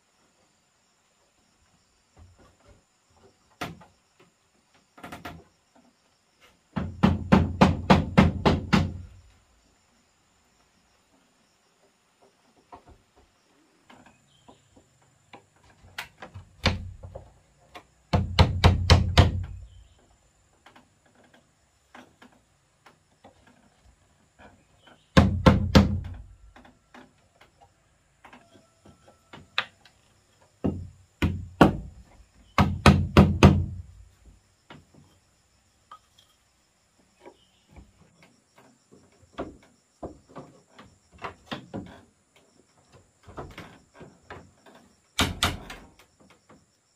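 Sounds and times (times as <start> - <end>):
wood-on-wood knocks: 6.7 - 9.2, 13.9 - 19.8, 25.1 - 27.5, 30.6 - 35.1, 38.9 - 42.1, 45.2 - 46.6.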